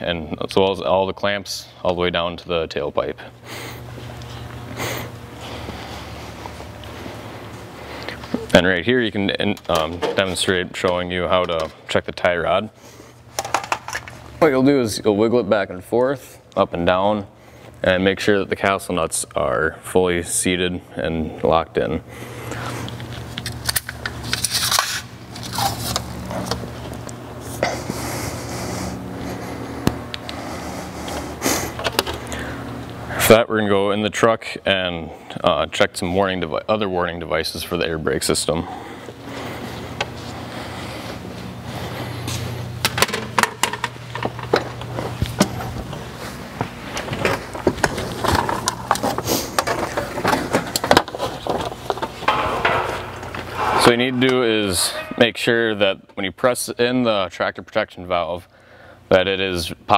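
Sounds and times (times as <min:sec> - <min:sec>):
workshop hum: 0:00.0 - 0:59.9.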